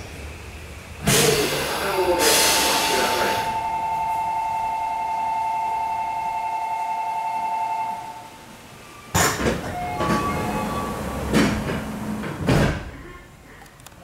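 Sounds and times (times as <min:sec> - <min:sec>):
loud clunk: 0:09.1 - 0:10.3, 0:11.3 - 0:13.0.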